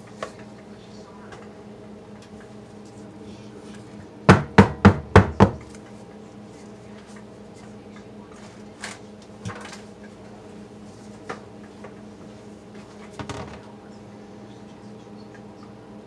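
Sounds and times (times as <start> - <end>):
steady low hum: 0.0 - 16.0
utensils knocking on countertop: 4.3 - 5.7.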